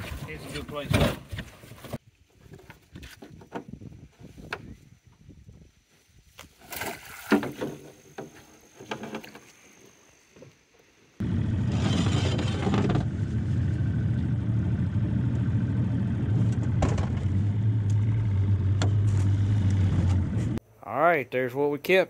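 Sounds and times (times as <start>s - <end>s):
outboard motor running: 11.2s - 20.6s.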